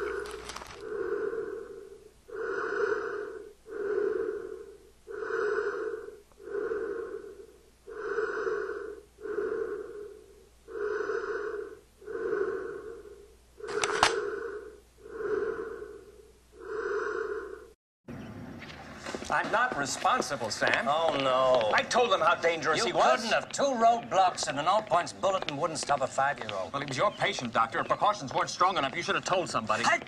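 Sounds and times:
man breathing behind a mask: 0:00.0 - 0:17.8.

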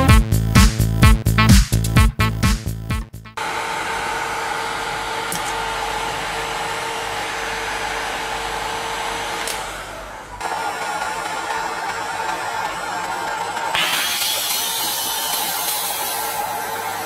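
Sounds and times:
electronic dance music: 0:00.0 - 0:03.0, 0:10.3 - 0:17.0
heat gun blowing: 0:03.4 - 0:11.2, 0:13.7 - 0:17.0.

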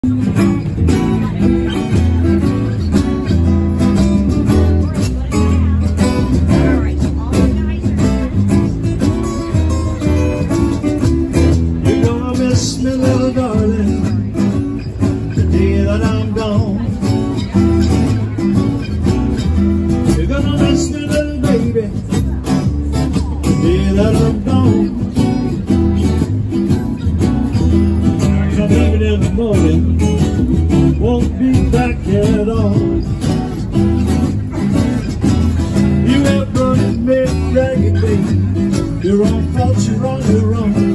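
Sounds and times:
acoustic guitars strummed: 0:00.0 - 0:40.9
low bass notes: 0:00.0 - 0:40.9
man singing into microphone: 0:11.8 - 0:14.4, 0:15.3 - 0:17.0, 0:20.1 - 0:22.2, 0:23.4 - 0:25.2, 0:28.2 - 0:30.1, 0:30.7 - 0:33.2, 0:36.0 - 0:40.9.

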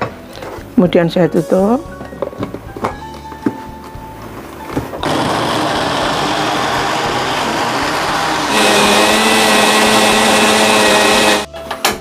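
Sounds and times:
electric blender running: 0:05.0 - 0:11.5.

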